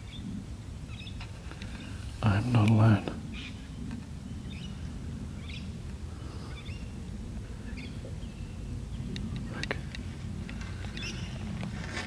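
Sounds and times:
low background rumble: 0.0 - 12.0
bird chirps: 0.9 - 2.1, 3.3 - 7.0, 7.6 - 9.6, 10.9 - 11.5.

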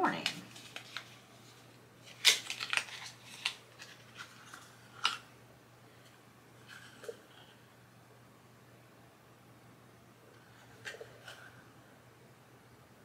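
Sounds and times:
faint handling sounds: 0.0 - 5.3, 5.9 - 7.7.

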